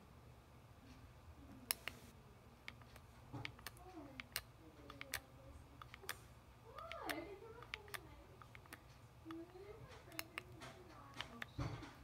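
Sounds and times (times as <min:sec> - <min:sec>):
sharp plastic clicks: 0:02.6 - 0:12.0.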